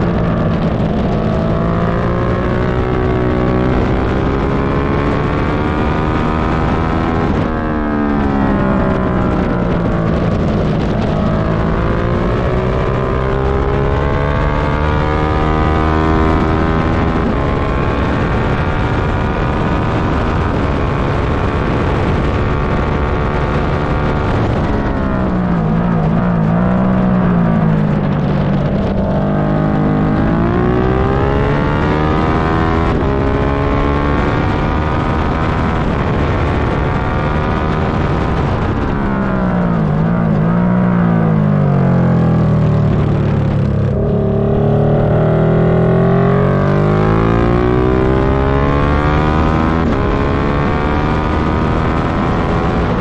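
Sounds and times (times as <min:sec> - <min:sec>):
motorcycle engine revving: 0:00.0 - 0:53.0
wind rush on microphone: 0:00.0 - 0:53.0.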